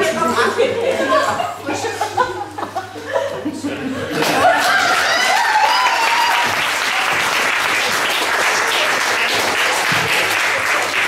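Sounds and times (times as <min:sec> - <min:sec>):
audience applauding: 0:04.2 - 0:11.0
person cheering: 0:04.4 - 0:07.0.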